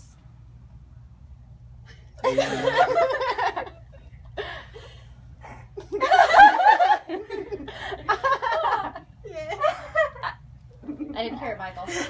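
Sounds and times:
woman laughing: 2.2 - 3.8.

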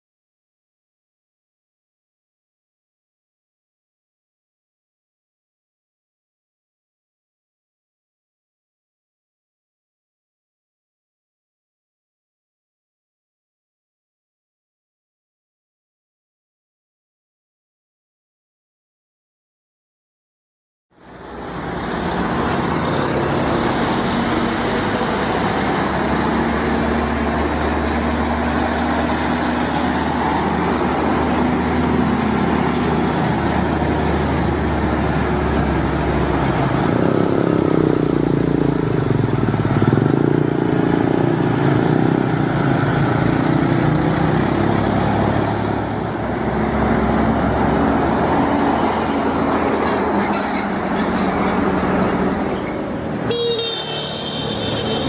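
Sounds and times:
diesel truck engines: 21.0 - 55.0
tyre and road noise: 21.0 - 55.0.

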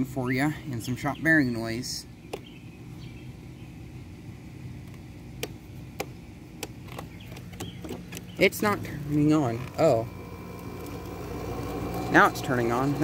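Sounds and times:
air conditioner humming: 0.0 - 13.0
selector switch clicks: 4.8 - 8.4.

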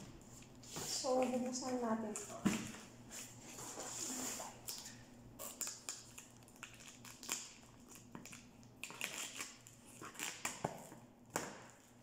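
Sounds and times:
packing tape tearing: 4.6 - 11.0.

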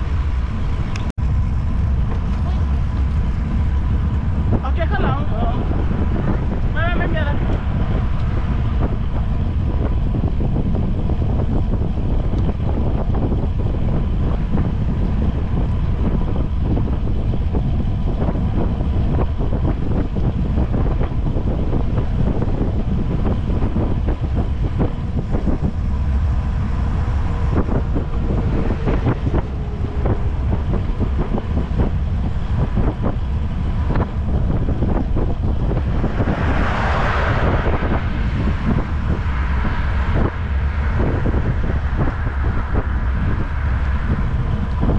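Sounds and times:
wind buffeting microphone: 0.0 - 44.9
pickup truck passing: 21.4 - 44.9.

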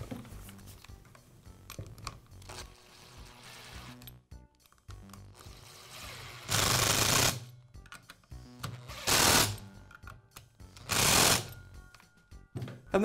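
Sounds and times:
power screwdriver running: 5.4 - 7.4, 8.9 - 9.6, 10.8 - 11.5.

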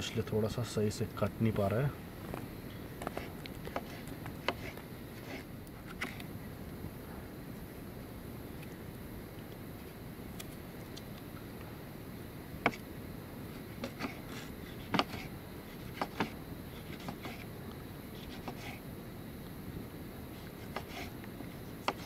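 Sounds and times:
knife chopping vegetables: 3.0 - 5.4, 13.8 - 17.4, 18.2 - 18.8, 20.6 - 21.1, 21.8 - 22.0.

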